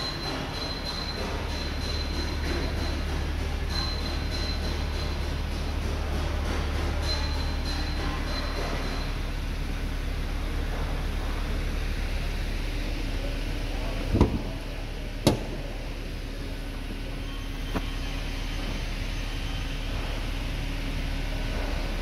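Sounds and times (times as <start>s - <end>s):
steady mechanical hum: 0.0s - 22.0s
hood latch clunks: 15.2s - 15.6s.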